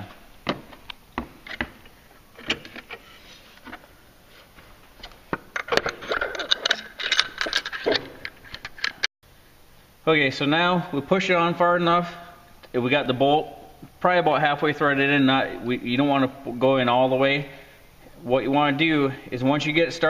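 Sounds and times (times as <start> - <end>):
metal clutch clicks and clinks: 5.0 - 9.1.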